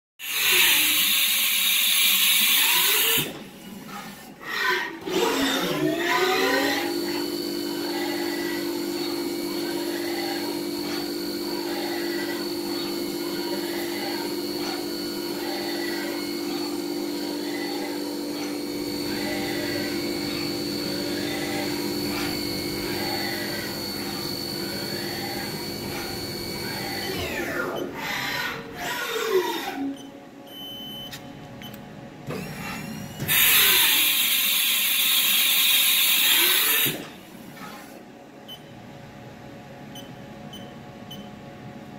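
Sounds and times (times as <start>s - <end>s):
axis motors whining: 2.4s - 30.1s
spindle whine: 5.0s - 28.9s.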